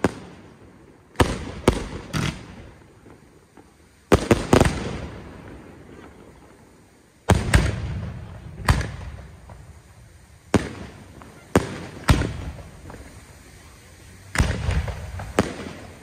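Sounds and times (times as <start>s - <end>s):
firework shells bursting: 0.0s - 6.6s, 7.2s - 16.0s.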